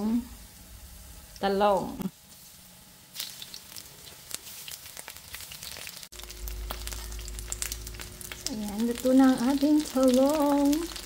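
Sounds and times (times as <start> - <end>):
eggplant sizzling in hot oil: 0.0 - 11.0
crackles and pops: 3.1 - 11.0
low hum: 6.1 - 11.0.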